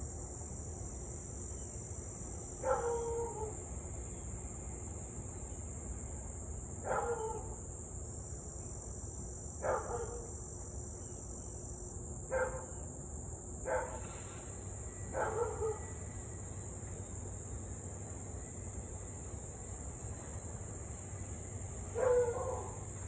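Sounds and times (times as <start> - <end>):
insects droning: 0.0 - 23.0
dog barking: 2.6 - 3.5, 6.9 - 7.5, 9.6 - 10.2, 12.3 - 12.7, 13.7 - 14.1, 15.2 - 15.9, 22.0 - 22.8.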